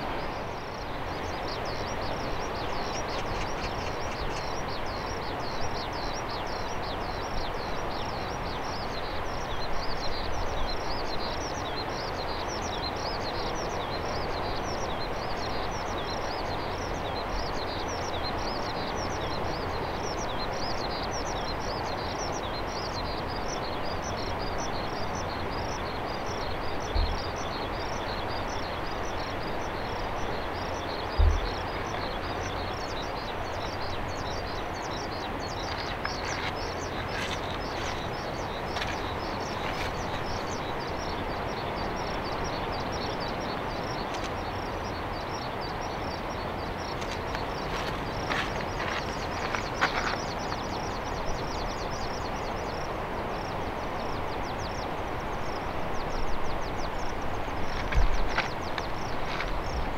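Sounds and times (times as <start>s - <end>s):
jet engines humming: 24.6s - 51.9s
low thumps: 31.1s - 31.7s.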